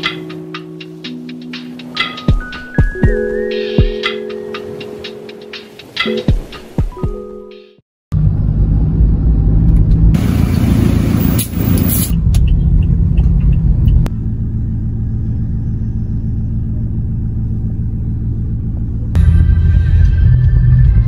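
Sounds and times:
car engine and road rumble: 0:08.1 - 0:21.0.

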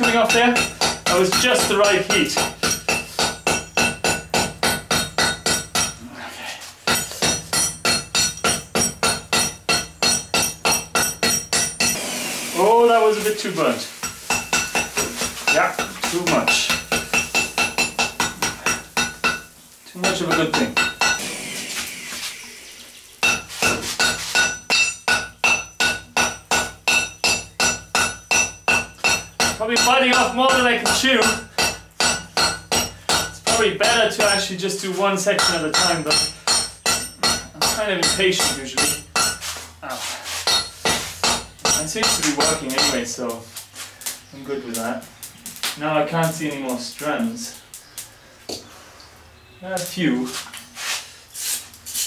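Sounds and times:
hammer ringing on anvil: 0:06.9 - 0:12.0, 0:24.0 - 0:34.4, 0:35.4 - 0:39.4, 0:40.5 - 0:43.1.

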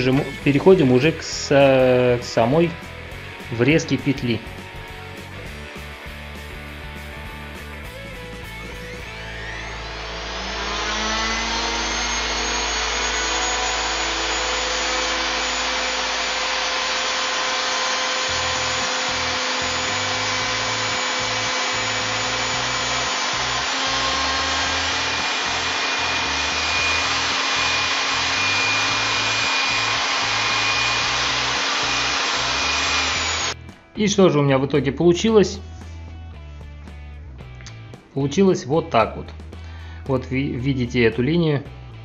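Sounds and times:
electric router whining: 0:08.6 - 0:33.6.

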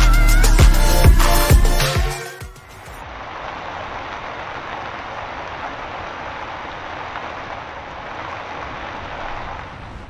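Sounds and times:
steady rain: 0:02.5 - 0:10.0.

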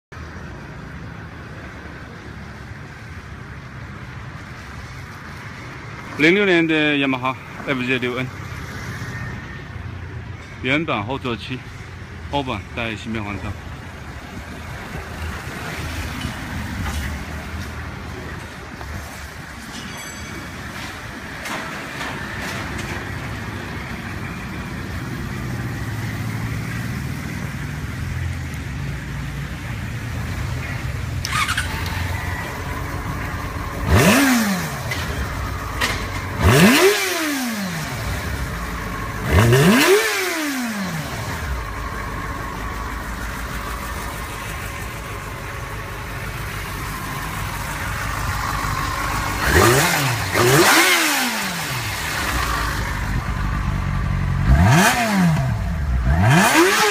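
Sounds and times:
motorcycle engine idling: 0:28.9 - 0:36.8, 0:37.8 - 0:39.5, 0:41.0 - 0:50.6, 0:51.6 - 0:54.5.

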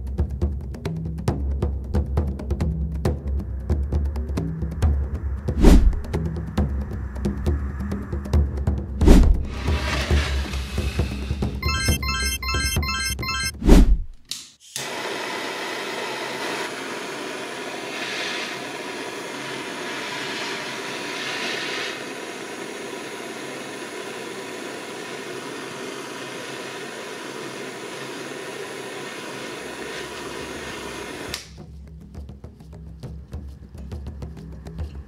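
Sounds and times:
jet torch hissing: 0:09.3 - 0:11.6, 0:14.6 - 0:31.5.

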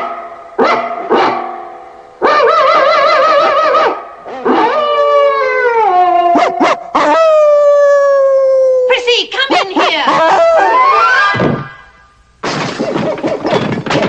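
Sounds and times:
cartoon dog barking: 0:02.2 - 0:07.5, 0:09.4 - 0:11.3
cartoon dog howling: 0:02.2 - 0:08.9, 0:09.5 - 0:11.4.

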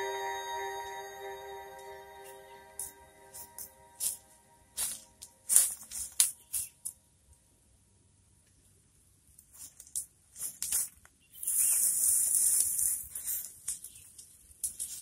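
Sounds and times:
dry leaves and straw crackling: 0:04.8 - 0:06.9, 0:09.5 - 0:15.0.

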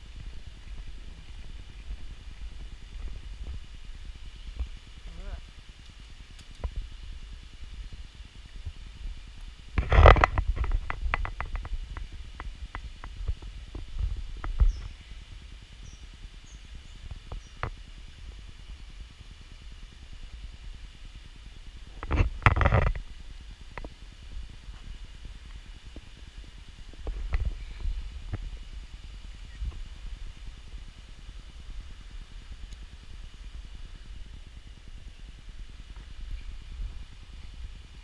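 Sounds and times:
low rumble on microphone: 0:00.0 - 0:38.0
small clicks and knocks: 0:09.8 - 0:14.9, 0:22.0 - 0:23.0.

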